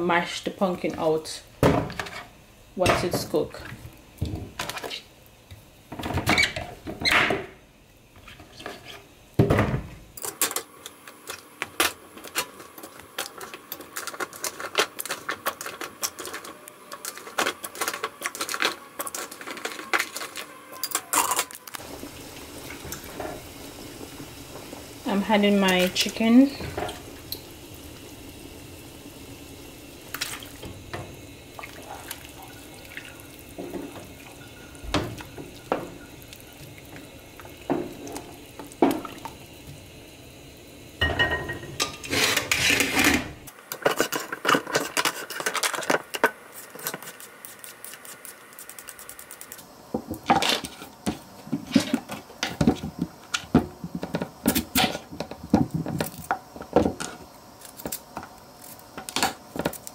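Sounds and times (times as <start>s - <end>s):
utensils clinking against pot: 13.2s - 21.8s, 41.0s - 47.1s.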